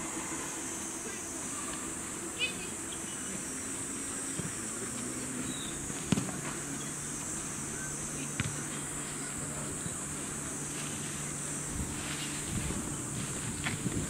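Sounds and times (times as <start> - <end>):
high-pitched insect drone: 0.0 - 14.0
low hum: 0.0 - 14.0
soccer ball kicked: 6.0 - 6.4.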